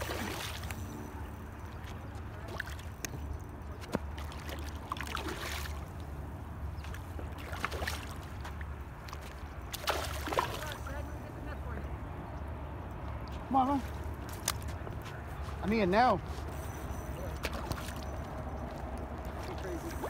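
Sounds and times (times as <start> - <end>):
fish splashing at water surface: 0.0 - 0.8, 6.8 - 8.4, 9.0 - 11.0.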